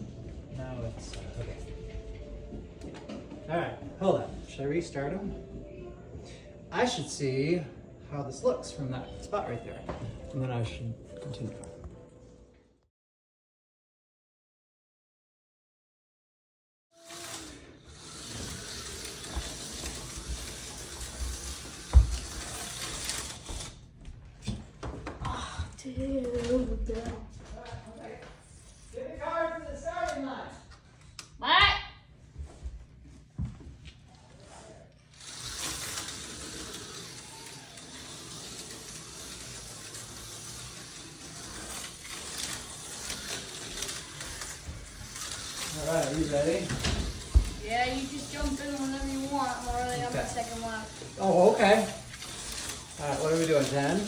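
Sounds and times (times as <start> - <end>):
slot car motor whirring: 17.0 - 23.8, 35.1 - 54.0.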